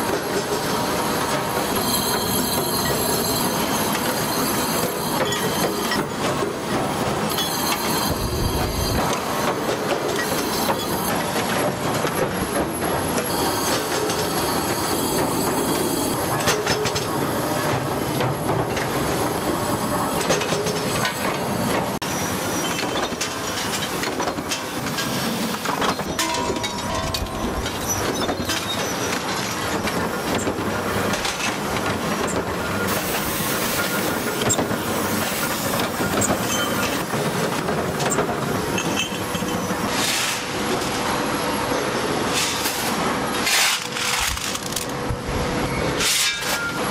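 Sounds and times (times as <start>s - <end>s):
factory machinery metallic din: 0.0s - 46.9s
metal clanks and knocks: 22.7s - 32.5s.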